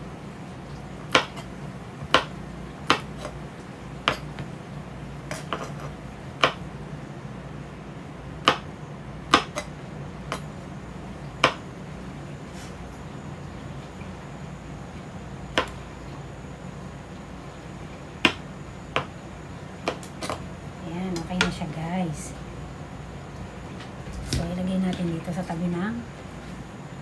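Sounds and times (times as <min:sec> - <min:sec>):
faint low hum: 0:00.0 - 0:27.0
knife chopping on cutting board: 0:01.1 - 0:03.4, 0:04.0 - 0:04.4, 0:05.3 - 0:06.6, 0:08.4 - 0:08.7, 0:09.3 - 0:09.7, 0:11.4 - 0:11.6, 0:15.5 - 0:15.8, 0:18.2 - 0:19.1, 0:19.8 - 0:20.4.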